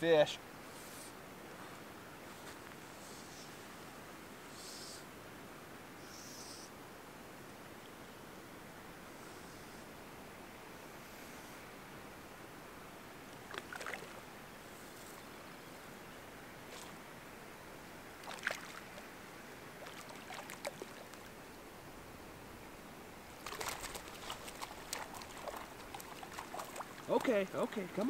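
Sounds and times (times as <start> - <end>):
faint steady hiss: 0.0 - 28.0
fish splashing at water surface: 18.2 - 19.0, 19.8 - 21.3, 23.4 - 27.2.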